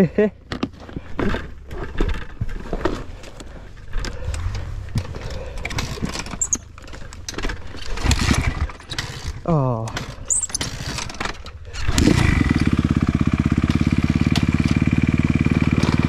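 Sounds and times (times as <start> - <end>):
dirt bike engine rumbling: 0.0 - 16.0
clattering knocks and rattles: 0.5 - 12.1.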